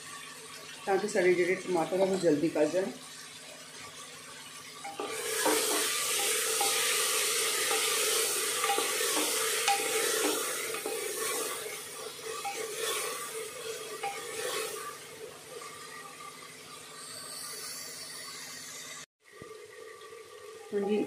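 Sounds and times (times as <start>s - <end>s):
tomatoes sizzling in hot oil: 0.0s - 21.0s
wooden spatula scraping pan: 5.0s - 14.9s.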